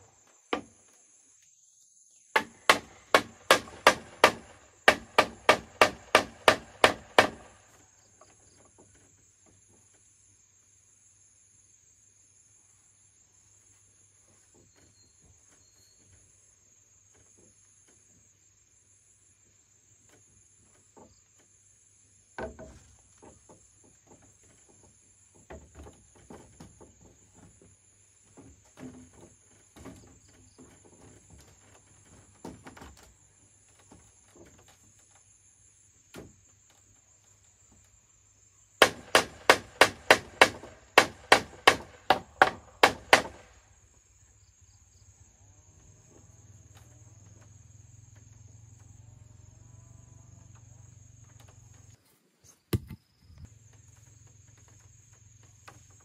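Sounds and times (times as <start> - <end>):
insects chirring: 0.0 - 56.0
bamboo knocks and clatter: 0.2 - 1.0, 2.3 - 10.0, 20.0 - 21.6, 22.3 - 35.4, 36.0 - 38.0, 38.8 - 43.6, 52.6 - 56.0
sharp strikes on bamboo: 2.3 - 7.7, 38.8 - 43.6.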